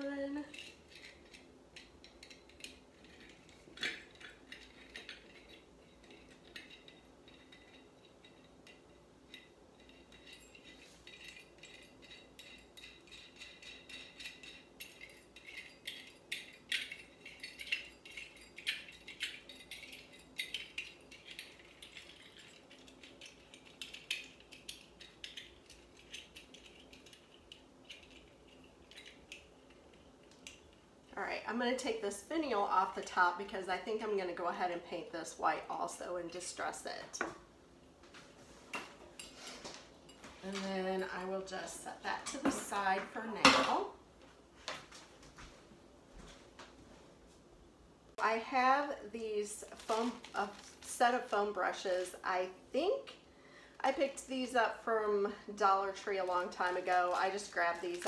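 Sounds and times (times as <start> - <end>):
metal parts clicking and clinking: 0.4 - 30.8, 55.6 - 58.0.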